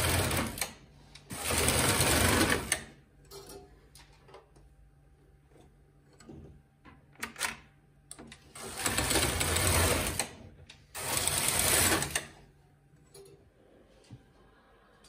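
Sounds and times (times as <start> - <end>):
knitting machine carriage rattling: 0.0 - 0.7, 1.3 - 2.9, 8.6 - 10.4, 11.0 - 12.3.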